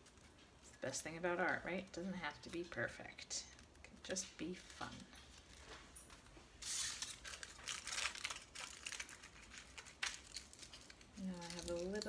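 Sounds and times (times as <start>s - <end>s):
aluminium foil crinkling: 0.0s - 12.0s.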